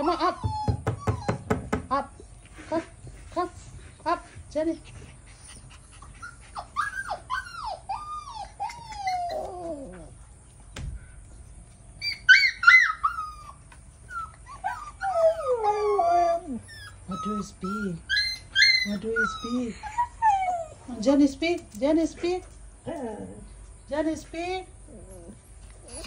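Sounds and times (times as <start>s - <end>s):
puppies whining: 0.0s - 2.4s, 5.2s - 10.4s, 11.9s - 21.1s, 24.8s - 26.0s
puppy howling cry: 6.5s - 10.2s, 12.0s - 13.6s, 14.2s - 20.8s.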